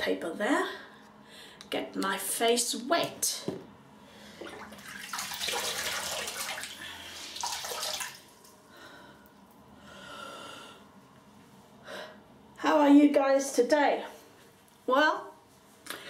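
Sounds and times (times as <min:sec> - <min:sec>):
tap water splashing in basin: 0:04.4 - 0:06.8, 0:07.4 - 0:08.3.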